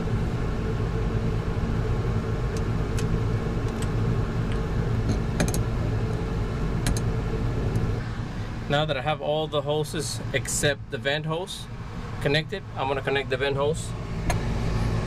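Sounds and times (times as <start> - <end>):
machinery hum: 0.0 - 15.0.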